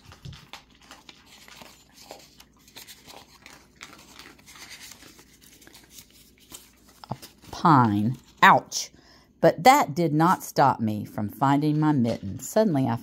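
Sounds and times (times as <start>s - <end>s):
paper rustling and crinkling: 0.0s - 8.5s.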